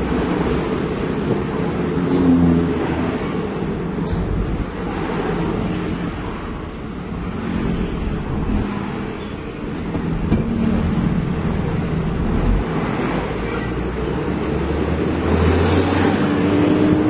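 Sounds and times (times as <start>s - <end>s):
road noise rumble: 0.0s - 17.0s
truck engine running: 3.4s - 14.5s.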